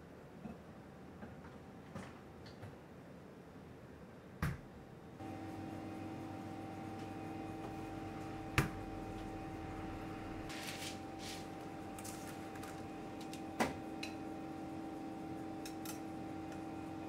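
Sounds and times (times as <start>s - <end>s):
steady hum: 5.2s - 17.0s
parchment paper rustling: 10.5s - 13.4s.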